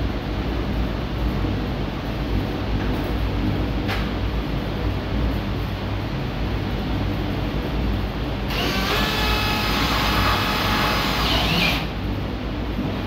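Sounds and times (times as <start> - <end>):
steady low hum: 0.0 - 13.0
electric motor whine: 8.5 - 11.9.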